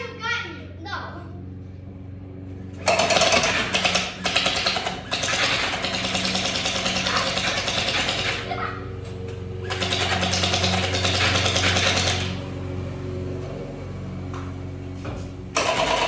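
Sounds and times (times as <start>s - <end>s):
gel blaster firing full auto: 2.8s - 8.5s, 9.6s - 12.4s, 15.6s - 16.0s.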